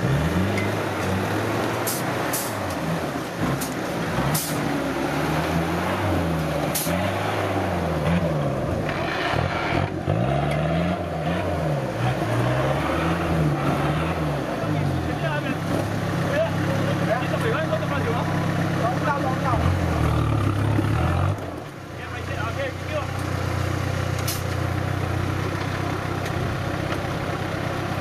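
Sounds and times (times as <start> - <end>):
four-wheel drive engine revving: 0.0 - 28.0.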